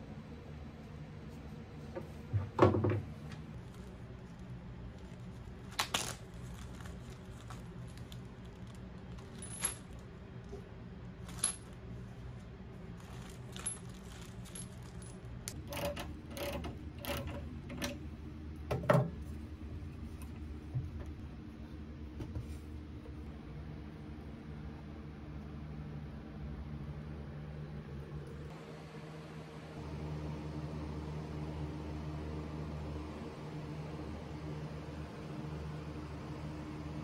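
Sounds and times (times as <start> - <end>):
metal hardware clinking in plastic bag: 5.0 - 10.0, 13.0 - 15.4.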